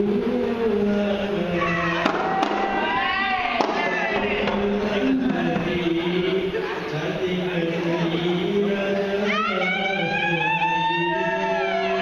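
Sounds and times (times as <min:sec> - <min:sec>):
men singing slow melody: 0:00.0 - 0:02.9, 0:03.7 - 0:12.0.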